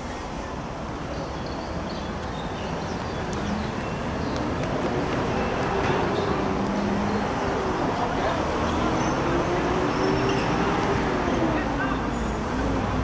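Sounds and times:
crowd hubbub: 0:04.4 - 0:12.4.

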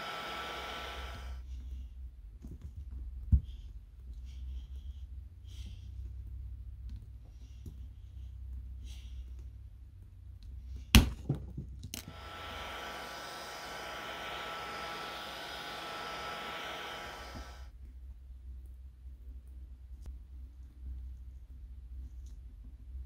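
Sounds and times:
heat gun fan whining: 0:00.0 - 0:01.4, 0:11.9 - 0:17.7.

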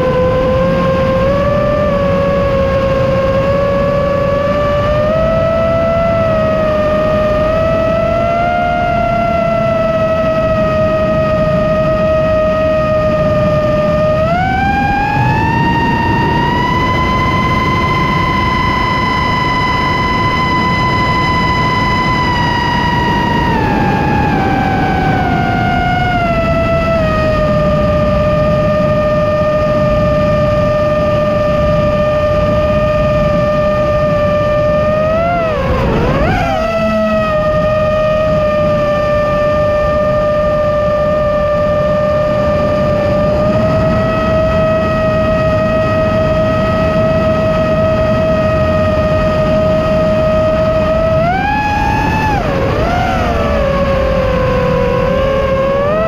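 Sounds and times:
drone motors whining: 0:00.0 - 0:56.0
low rushing noise: 0:00.0 - 0:56.0.

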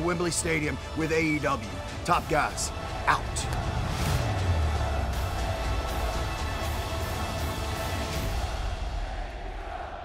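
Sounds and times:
music with heavy deep bass: 0:01.6 - 0:09.3
crowd noise: 0:02.7 - 0:10.0.

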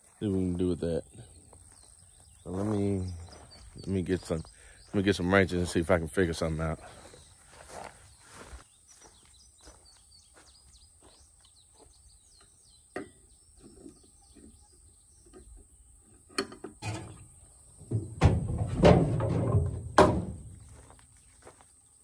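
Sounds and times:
birds chirping: 0:00.0 - 0:22.0
thumps: 0:17.8 - 0:20.8.

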